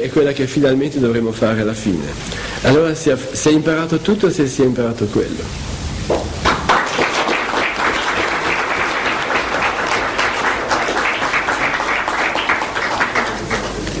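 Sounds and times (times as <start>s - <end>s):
audience applauding: 6.1s - 14.0s.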